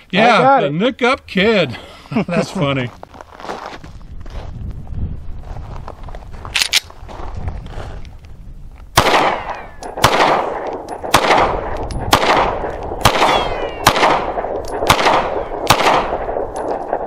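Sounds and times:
pistol shots with echo: 9.0 - 17.0.

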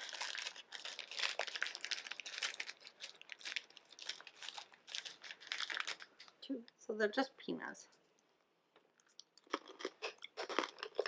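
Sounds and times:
plastic snack bag crinkling: 0.0 - 6.6, 9.0 - 11.0.

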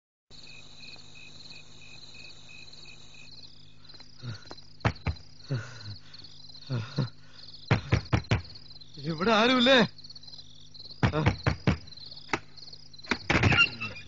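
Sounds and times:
crickets chirping: 0.3 - 14.0
knocks and dull thuds: 4.3 - 5.3, 7.7 - 8.7, 10.9 - 13.8.

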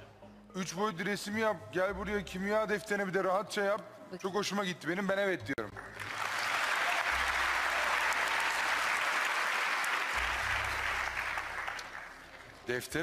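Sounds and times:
audience applauding: 5.7 - 12.7.

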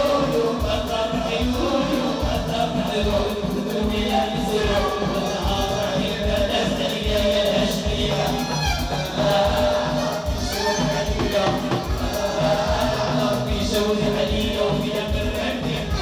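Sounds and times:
drum kit beat with cymbals: 0.0 - 16.0
live band music: 0.0 - 16.0
person singing melody: 15.5 - 16.0.

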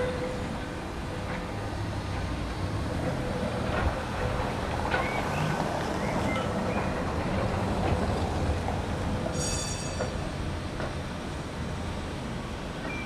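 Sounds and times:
high squeaks of tram wheels: 0.0 - 1.5, 3.0 - 11.0, 12.8 - 13.0
tram rumbling on tracks: 0.0 - 13.0.

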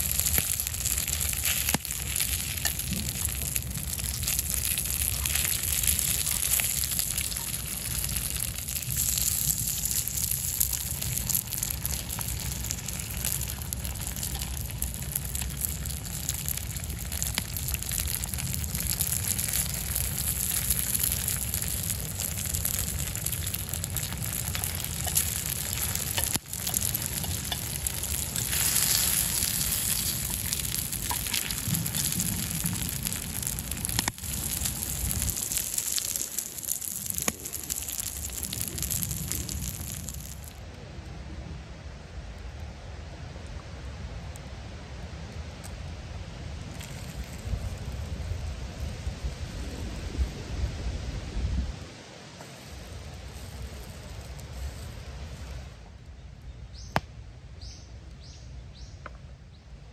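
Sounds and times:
food sizzling in skillet: 0.0 - 40.5
low rumble of fire: 0.0 - 59.9.

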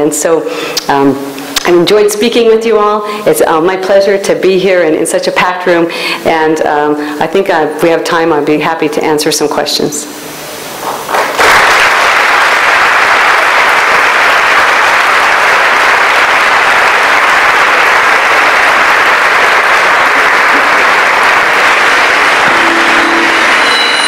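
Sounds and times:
audience applauding: 10.8 - 24.0.

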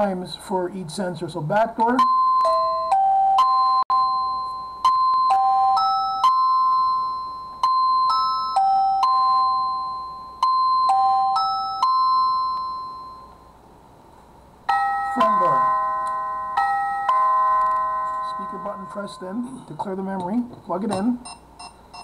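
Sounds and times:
electronic doorbell chime melody: 2.0 - 13.6, 14.7 - 19.5.

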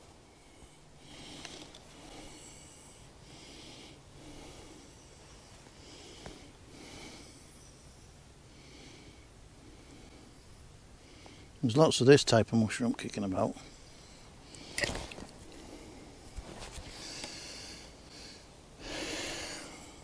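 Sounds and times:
person breathing close to microphone: 0.2 - 7.7, 13.6 - 20.0.

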